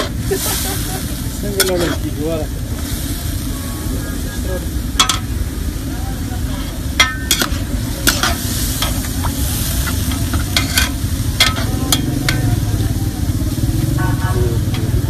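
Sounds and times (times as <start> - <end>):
vegetables sizzling in oil: 0.0 - 15.0
metal ladle scraping a pot: 1.6 - 2.2, 6.5 - 12.5.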